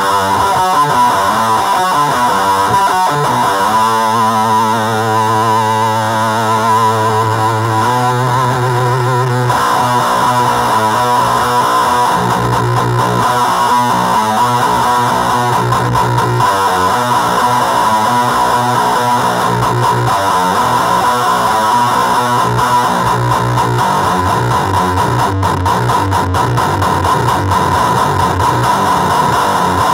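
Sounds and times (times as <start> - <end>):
distorted electric guitar: 0.0 - 29.9.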